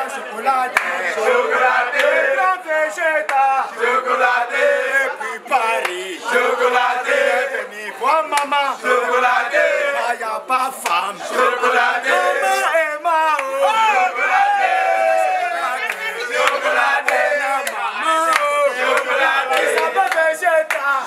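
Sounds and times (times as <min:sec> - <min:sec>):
young men shouting and chanting: 0:00.0 - 0:21.0.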